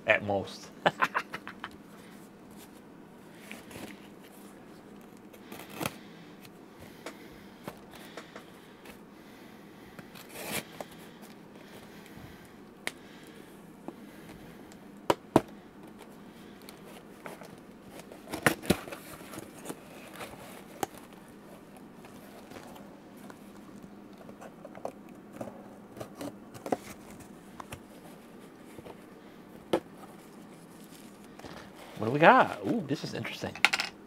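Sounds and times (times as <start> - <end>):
packing tape slit: 5.0 - 6.0, 10.0 - 11.4, 15.9 - 21.2.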